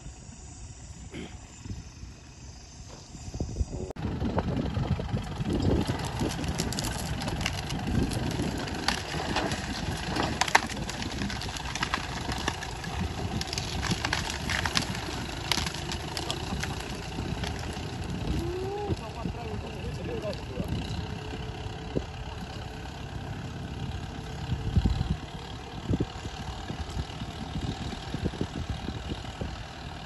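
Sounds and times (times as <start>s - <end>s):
tractor engine running: 0.0s - 30.0s
branches cracking: 5.5s - 20.9s.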